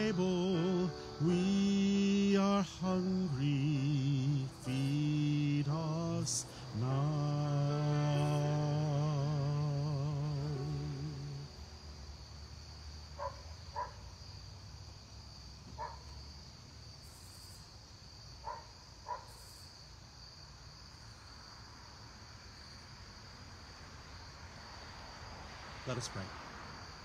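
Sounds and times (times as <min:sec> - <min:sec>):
held keyboard note: 0:00.0 - 0:11.6
crickets chirring: 0:00.0 - 0:27.0.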